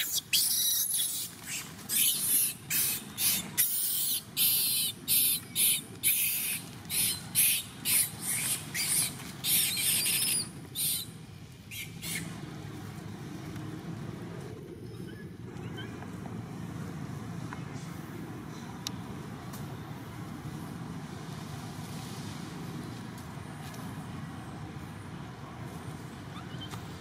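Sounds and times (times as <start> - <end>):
monkey screaming: 0.0 - 11.0, 11.7 - 12.3.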